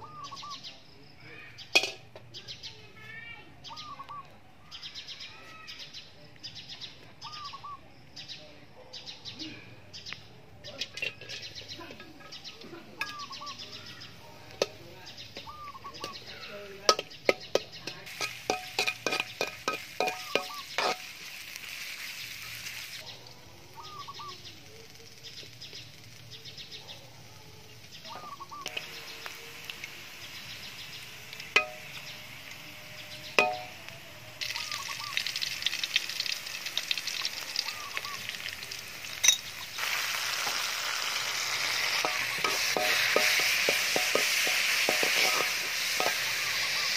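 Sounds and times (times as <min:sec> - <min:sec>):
birds chirping: 0:00.0 - 0:46.9
ginger frying in oil: 0:01.6 - 0:02.3, 0:10.7 - 0:46.9
metal spatula scraping a wok: 0:10.8 - 0:12.4, 0:16.9 - 0:23.0, 0:39.1 - 0:46.9.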